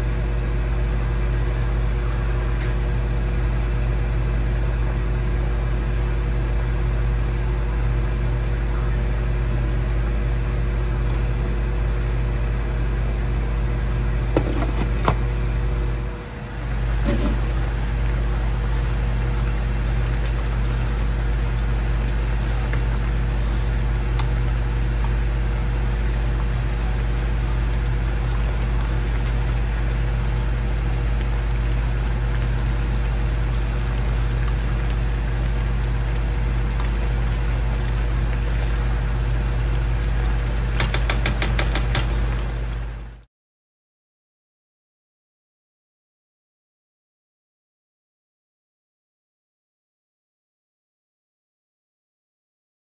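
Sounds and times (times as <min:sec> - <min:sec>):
kitchen fan humming: 0:00.0 - 0:43.3
ladle clicking on pan: 0:40.8 - 0:42.2.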